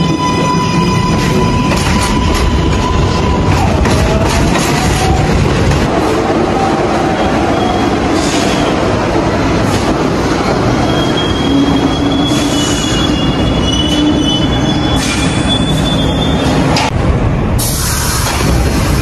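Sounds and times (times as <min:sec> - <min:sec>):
subway train rumbling on rails: 0:00.0 - 0:19.0
high-pitched wheel squeal: 0:10.7 - 0:16.6.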